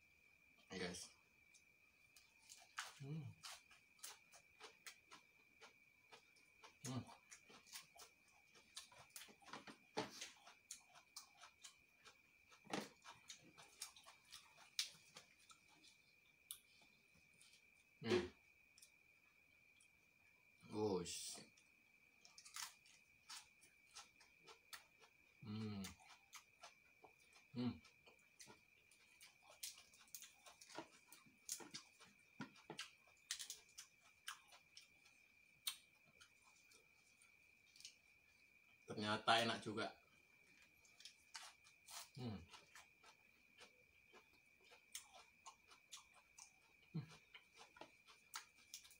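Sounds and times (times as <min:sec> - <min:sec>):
faint high-pitched whine: 0:00.0 - 0:48.9
chewing with mouth clicks: 0:01.5 - 0:17.8, 0:21.5 - 0:38.4, 0:40.4 - 0:48.9.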